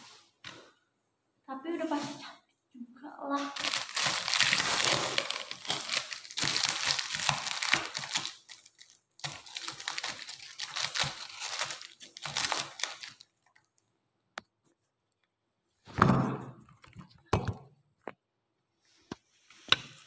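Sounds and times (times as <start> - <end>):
plastic packaging crinkling: 3.4 - 13.8.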